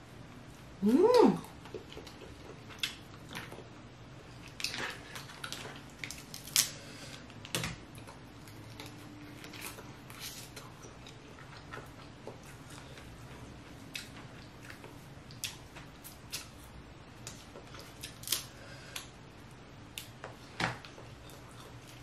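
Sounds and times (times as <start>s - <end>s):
crab shells cracking and snapping: 4.5s - 9.8s, 17.2s - 19.1s.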